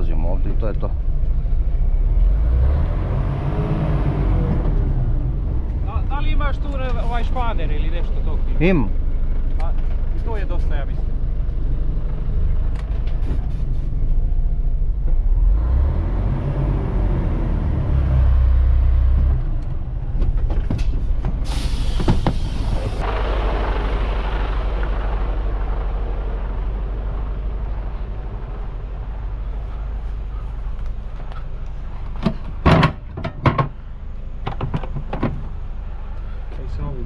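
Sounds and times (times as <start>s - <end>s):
truck diesel engine revving: 1.8s - 8.8s, 15.2s - 20.2s, 21.4s - 32.6s
air brakes hissing: 21.4s - 23.0s.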